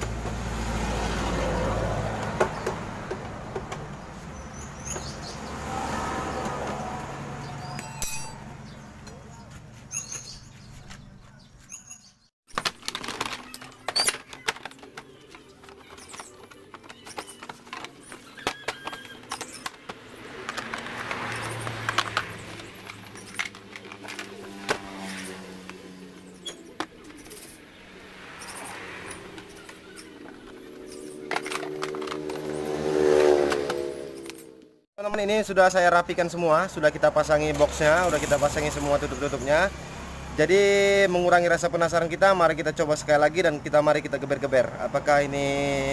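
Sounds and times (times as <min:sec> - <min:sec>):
plastic and tools clicking and knocking: 0:02.1 - 0:04.0, 0:12.5 - 0:25.8, 0:29.0 - 0:34.7.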